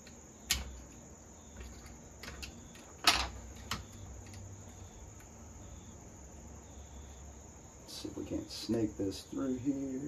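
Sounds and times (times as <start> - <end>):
small parts clicking: 0.0 - 1.0, 1.6 - 5.4.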